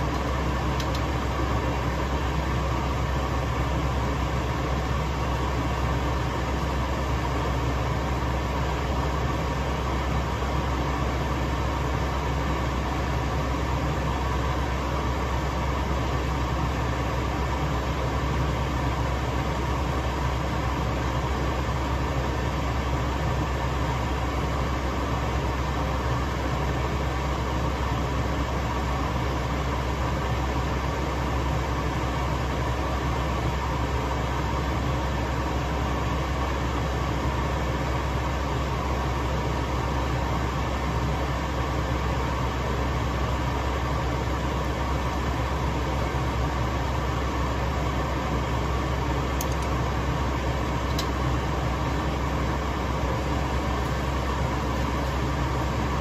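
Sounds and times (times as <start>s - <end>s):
gas burner hum and hiss: 0.0s - 56.0s.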